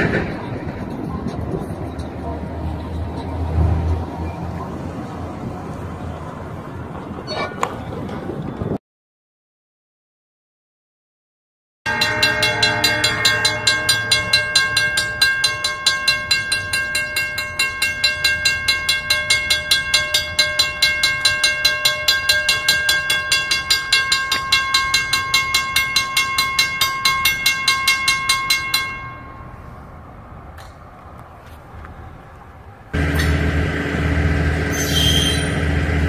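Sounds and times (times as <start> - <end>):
railroad crossing bell ringing: 11.9 - 30.2, 33.0 - 36.0.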